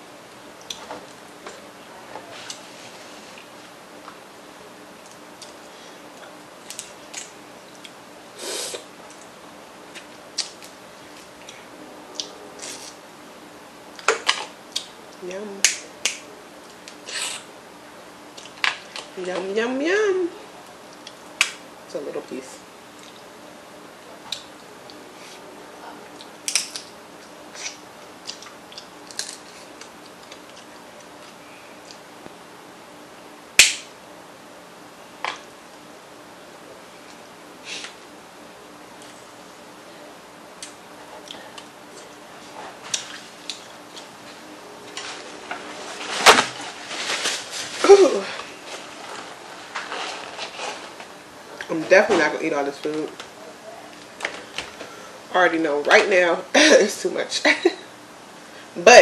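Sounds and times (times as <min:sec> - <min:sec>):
crab shell cracking: 0:28.4 - 0:30.5.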